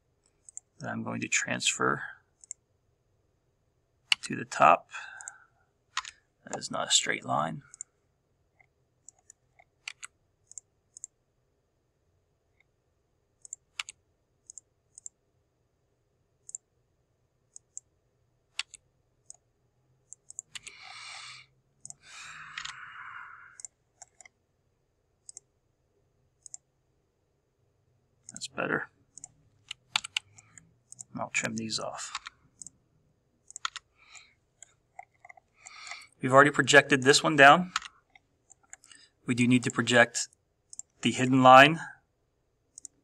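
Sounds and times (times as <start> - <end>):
mouse and keyboard clicks: 0.3 - 0.7, 2.4 - 2.6, 4.1 - 4.3, 6.0 - 6.6, 8.6 - 11.1, 13.4 - 15.2, 18.6 - 19.5, 20.1 - 22.8, 23.6 - 24.4, 26.4 - 26.7, 29.1 - 32.8, 33.4 - 36.2, 37.7 - 39.0, 40.7 - 41.0, 42.7 - 43.0.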